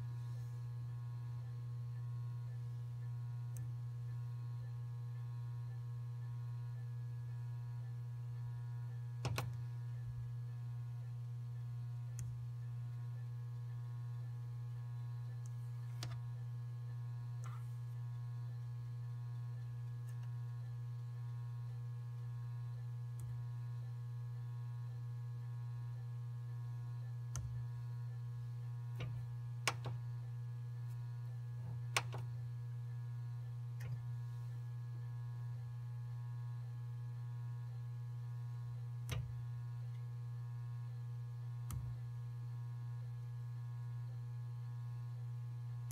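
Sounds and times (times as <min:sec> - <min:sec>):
electrical hum: 0:00.0 - 0:45.9.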